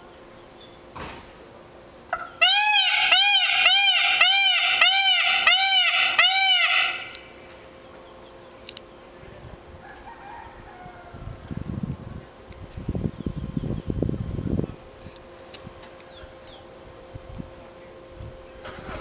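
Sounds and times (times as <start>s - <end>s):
peafowl calling: 2.1s - 7.4s.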